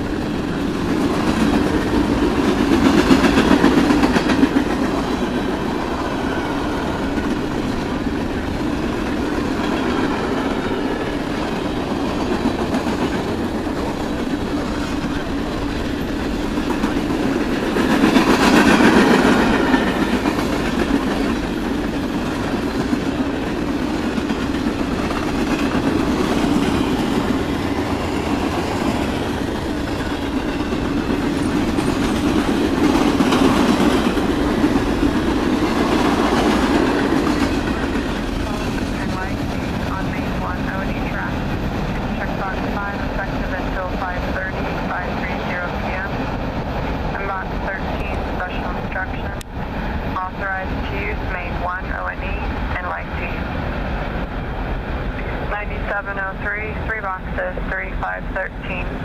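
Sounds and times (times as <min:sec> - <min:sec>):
freight train wheels clattering: 0:00.0 - 0:43.0.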